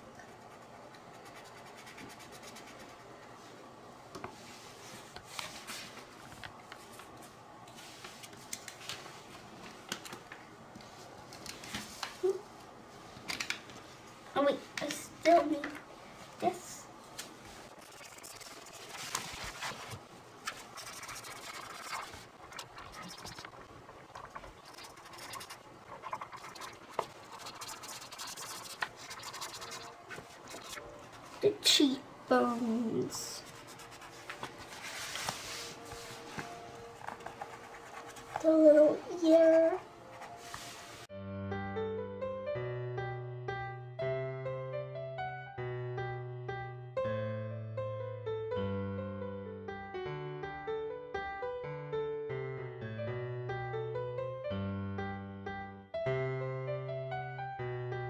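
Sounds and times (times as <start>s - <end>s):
marker scratching on paper: 0.5s - 3.0s, 17.8s - 23.6s, 24.2s - 31.5s, 33.4s - 35.6s, 37.0s - 38.5s
marker pens clicking and rustling: 17.8s - 23.6s, 24.2s - 30.8s.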